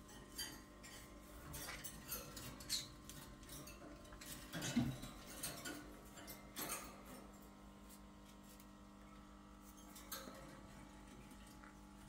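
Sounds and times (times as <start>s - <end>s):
claws and beaks clinking on wire: 0.0s - 7.4s.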